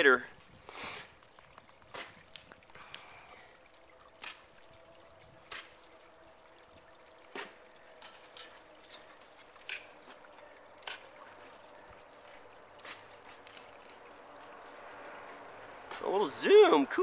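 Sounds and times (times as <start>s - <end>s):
faint water trickle: 0.0s - 17.0s.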